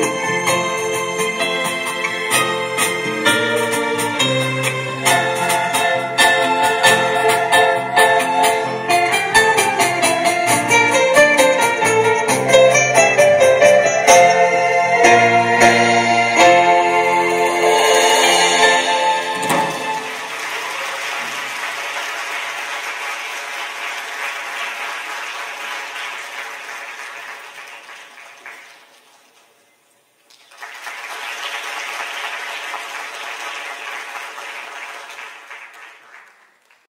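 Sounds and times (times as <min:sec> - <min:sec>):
audience applauding: 0:19.4 - 0:29.6, 0:30.3 - 0:36.9.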